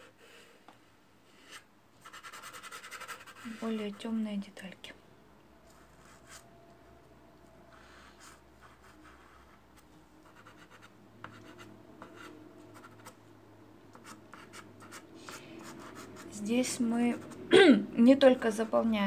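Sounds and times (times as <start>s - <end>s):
pastel scratching on paper: 1.4s - 4.0s, 10.2s - 13.2s.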